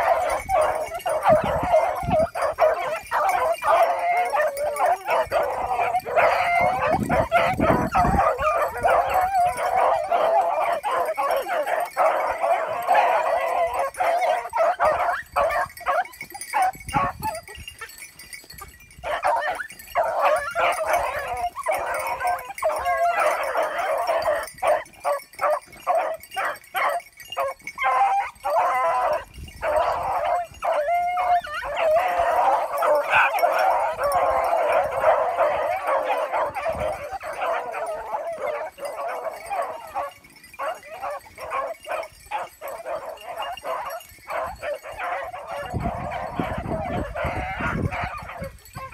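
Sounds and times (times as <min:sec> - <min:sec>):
hounds baying and yelping: 0:00.0 - 0:48.9.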